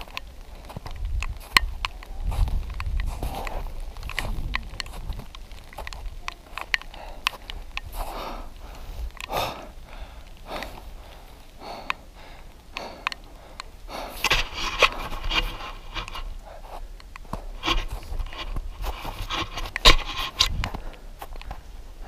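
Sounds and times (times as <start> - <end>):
person breathing hard: 6.8 - 18.1, 20.4 - 21.7
clicks and scrapes of gear: 14.2 - 16.3, 17.6 - 21.6.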